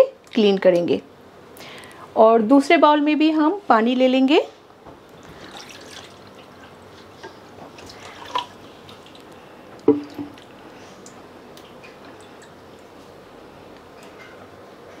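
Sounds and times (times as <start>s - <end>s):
water splashing in a bowl: 5.2s - 6.7s, 7.8s - 9.3s.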